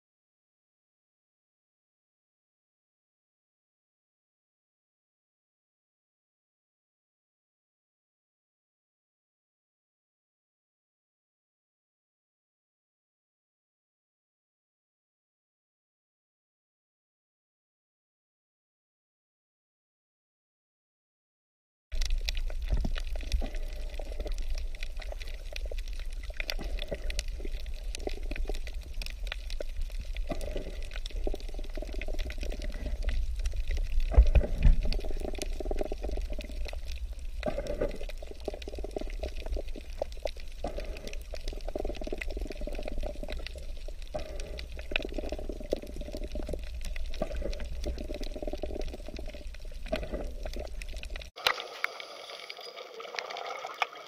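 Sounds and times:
water sloshing underwater: 22.0s - 54.0s.

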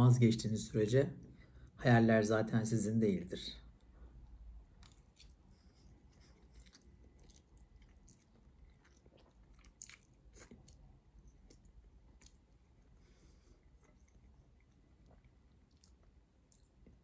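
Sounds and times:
soft chewing with wet clicks: 3.8s - 17.0s.

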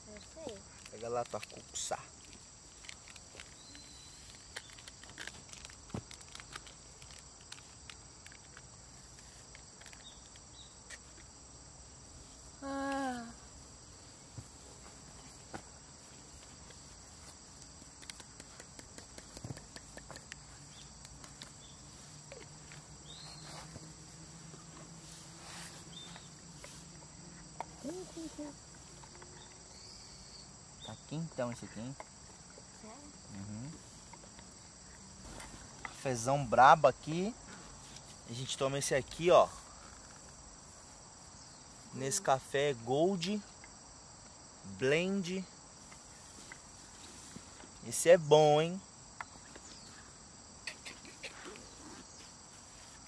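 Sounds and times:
high insect chorus: 0.0s - 53.0s.

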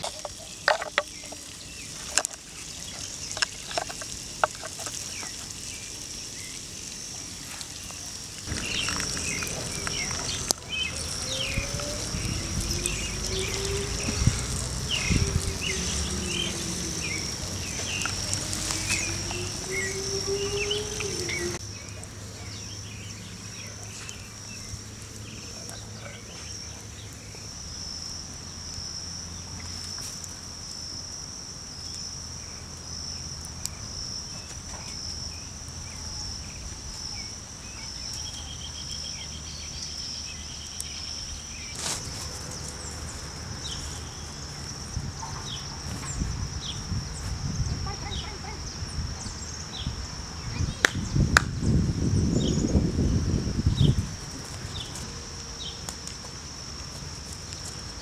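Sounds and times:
insects chirring: 0.0s - 58.0s
bird chirps: 7.8s - 27.5s
low rising tone: 8.5s - 21.6s.

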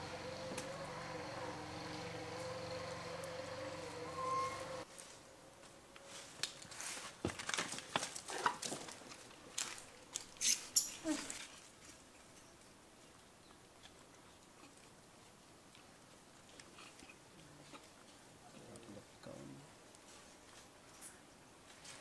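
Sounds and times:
monkey squeaks: 10.4s - 11.2s.

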